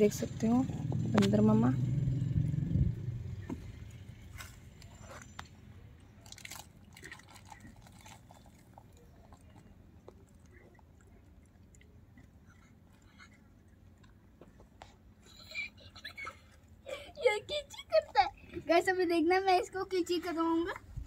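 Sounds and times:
monkeys crunching snacks: 0:04.3 - 0:16.8.

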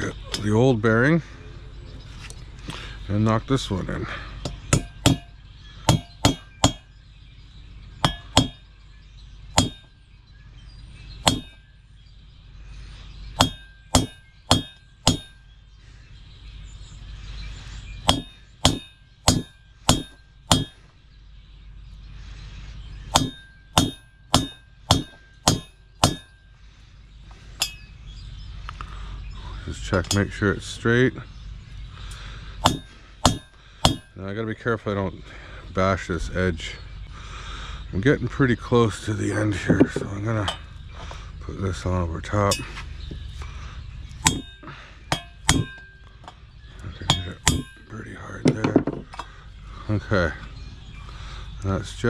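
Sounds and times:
hammer striking metal: 0:04.4 - 0:06.9, 0:08.0 - 0:08.6, 0:09.6 - 0:10.0, 0:11.2 - 0:11.7, 0:13.4 - 0:15.5, 0:18.0 - 0:20.9, 0:23.1 - 0:26.4, 0:27.6 - 0:27.9, 0:30.0 - 0:30.4, 0:32.6 - 0:34.2, 0:44.2 - 0:46.4, 0:47.0 - 0:47.9.

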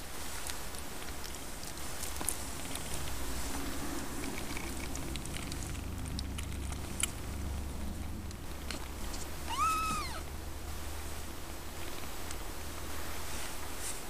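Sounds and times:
cat purring: 0:02.4 - 0:10.3
kitten mewing: 0:09.3 - 0:10.3.

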